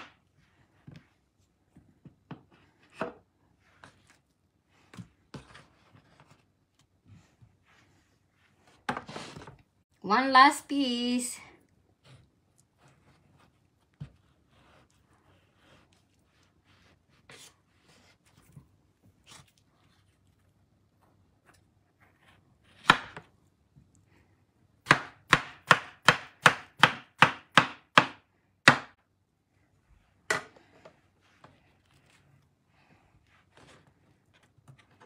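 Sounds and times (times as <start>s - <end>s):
knife chopping on wooden board: 24.8s - 29.0s.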